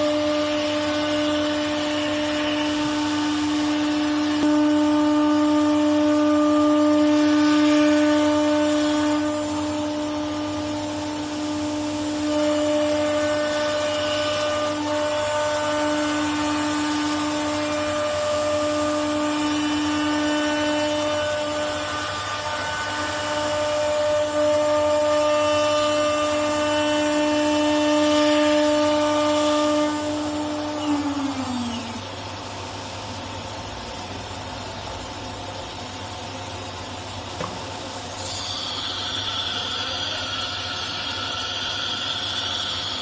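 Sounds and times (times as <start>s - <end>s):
router spindle whining: 0.0s - 33.1s, 37.8s - 43.0s
router bit cutting wood: 29.4s - 32.1s.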